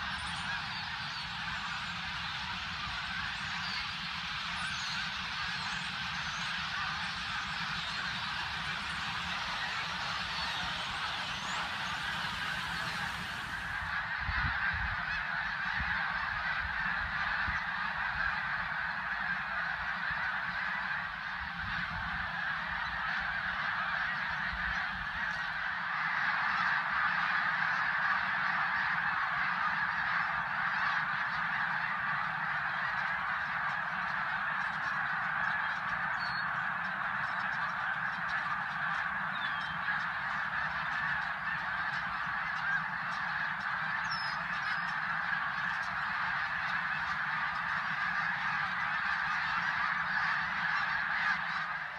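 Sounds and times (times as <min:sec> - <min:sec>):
wind rumbling on microphone: 0:00.0 - 0:18.3
geese honking: 0:00.0 - 0:51.9.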